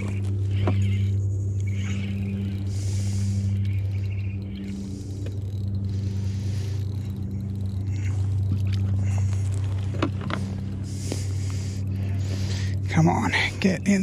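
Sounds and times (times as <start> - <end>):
electric motor humming: 0.0 - 14.0.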